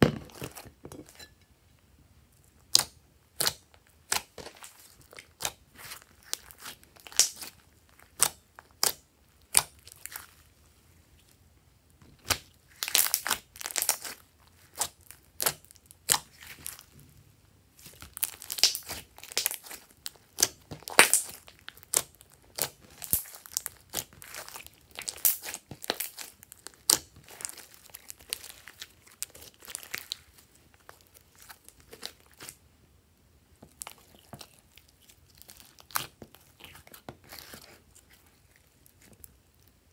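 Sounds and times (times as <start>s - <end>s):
slime popping and crackling: 2.7s - 10.2s, 12.2s - 16.9s, 17.8s - 32.6s, 33.6s - 39.4s.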